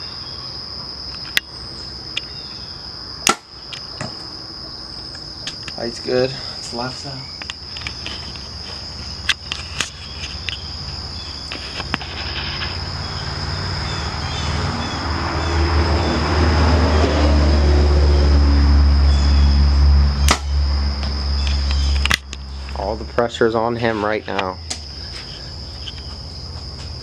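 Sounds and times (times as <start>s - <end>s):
insects shrilling: 0.0s - 27.0s
sharp snap: 3.2s - 3.5s, 20.2s - 20.6s
low mechanical rumble: 3.9s - 27.0s.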